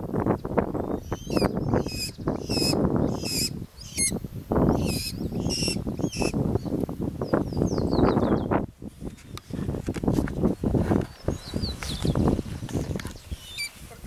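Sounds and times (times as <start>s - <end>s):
rustling leaves and wind: 0.0s - 14.0s
falcon calling: 1.0s - 6.4s.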